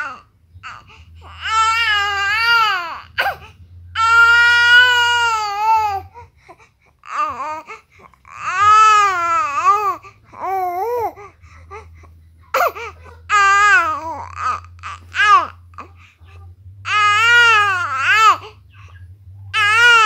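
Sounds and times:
infant crying: 0.0 - 6.3, 7.0 - 18.7, 19.5 - 20.0.

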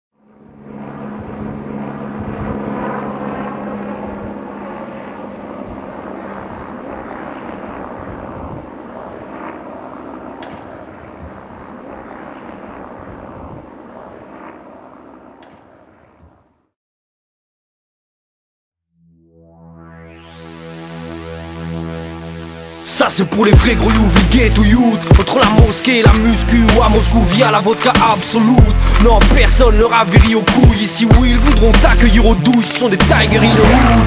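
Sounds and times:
low hum: 0.2 - 16.3, 19.0 - 34.0
mechanical rumble: 23.6 - 25.2, 28.4 - 30.4, 31.1 - 32.4.

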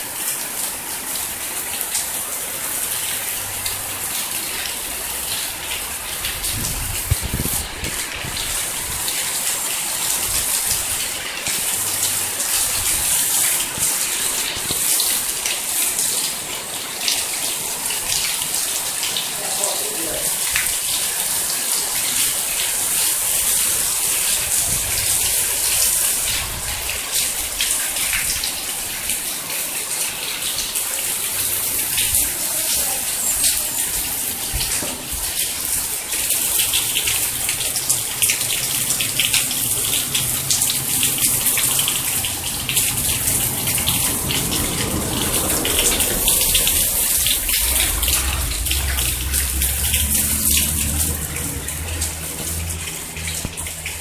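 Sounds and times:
heavy rain on roofs: 0.0 - 54.0.

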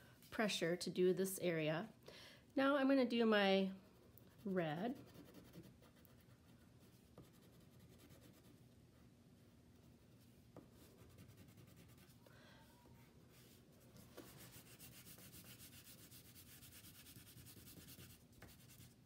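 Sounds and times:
crayon scratching on paper: 10.8 - 12.1, 14.3 - 19.0.

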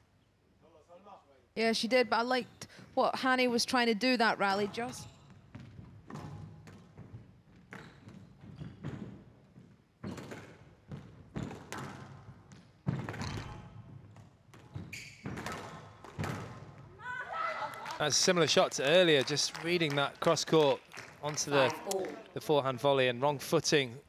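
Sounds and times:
squash ball knocks: 10.0 - 16.9.

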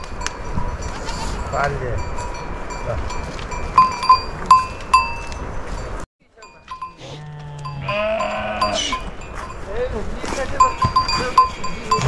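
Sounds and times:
sheep bells clanking: 0.0 - 12.0
sheep bleating: 7.0 - 9.2, 11.3 - 12.0.

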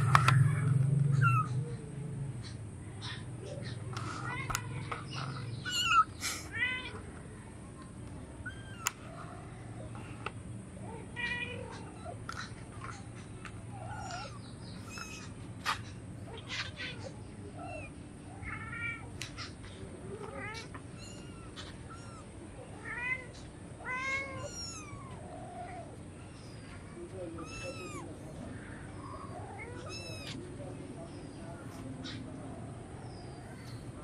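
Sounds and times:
kitten mewing: 0.0 - 1.7, 5.2 - 6.9, 20.3 - 26.0, 27.3 - 30.5.

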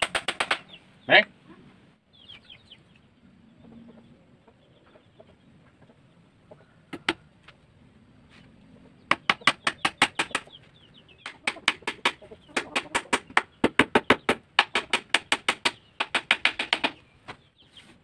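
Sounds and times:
hammer tapping nails into wood: 11.2 - 17.0.

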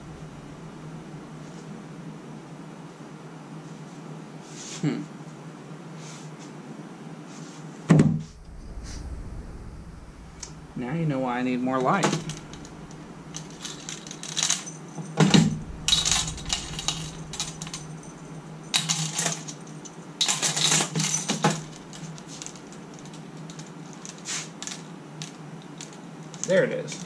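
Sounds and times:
metal tools clinking in drawer: 11.9 - 24.9.

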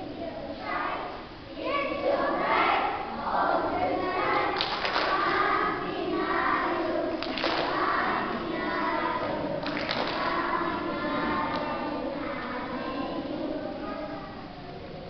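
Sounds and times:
children's choir singing: 0.0 - 15.0
sharp thumps or claps: 7.2 - 7.7.

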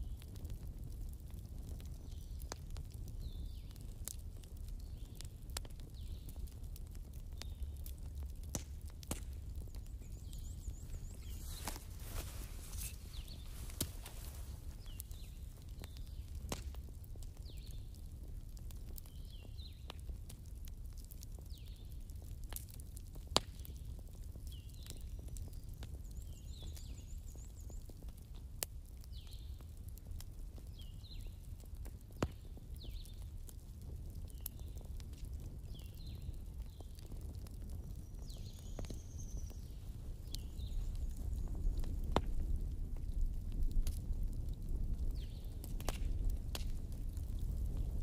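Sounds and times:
faint chirp-like sounds: 0.0 - 48.0
wood fire crackling: 0.0 - 48.0
sharp pops: 10.9 - 14.4.

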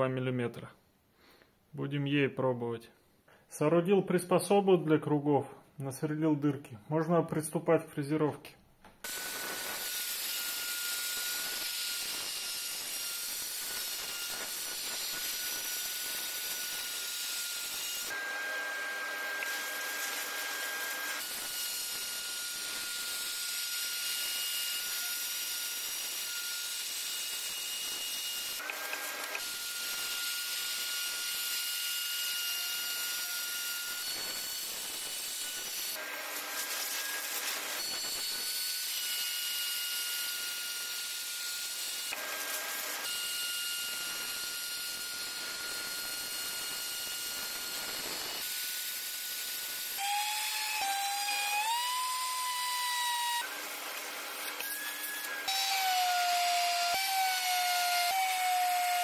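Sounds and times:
electric router cutting plywood: 9.0 - 59.0.

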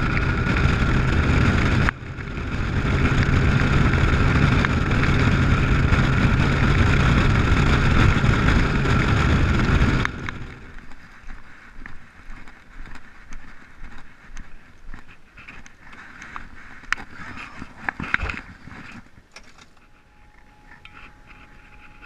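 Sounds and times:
outboard engine running: 0.0 - 12.5, 19.8 - 22.0.

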